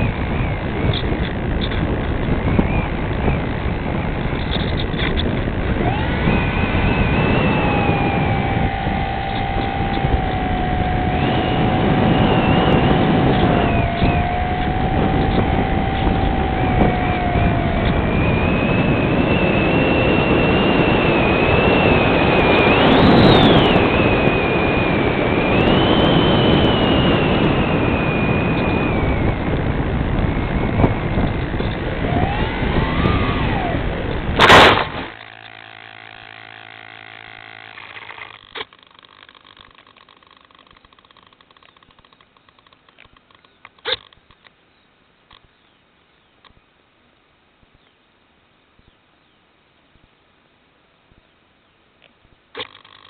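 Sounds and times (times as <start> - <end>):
wind rush: 0.0 - 35.5
electric motor and propeller whine: 0.0 - 44.4, 52.6 - 53.0
faint steady hum: 0.0 - 53.0
loud impact in grass: 34.4 - 35.4.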